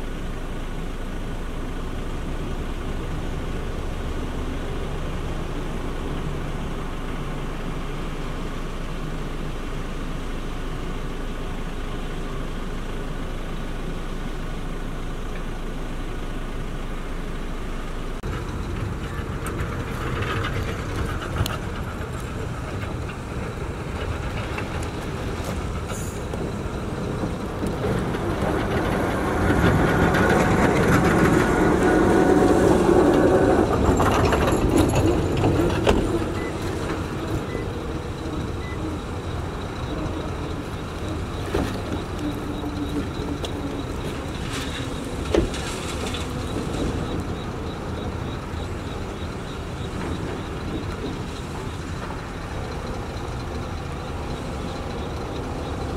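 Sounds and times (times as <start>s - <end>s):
diesel engines running: 0.0s - 55.9s.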